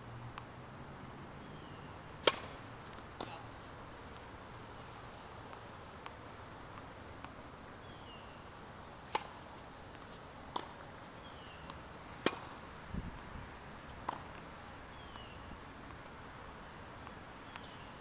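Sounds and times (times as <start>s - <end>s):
tennis ball struck by rackets: 2.1s - 3.5s, 9.1s - 9.4s, 10.5s - 10.8s, 11.6s - 12.6s, 14.0s - 14.5s.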